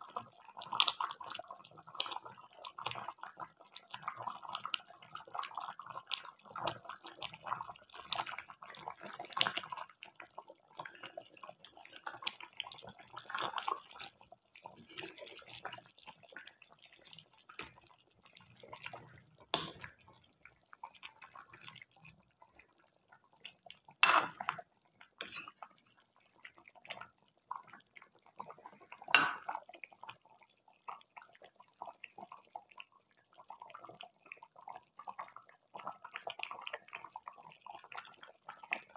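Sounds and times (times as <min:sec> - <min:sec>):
curry bubbling and popping: 0:00.0 - 0:38.9.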